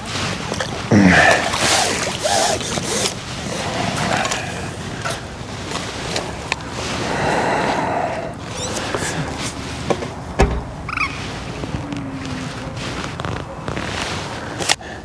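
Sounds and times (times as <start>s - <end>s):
water splashing: 0.0s - 14.4s.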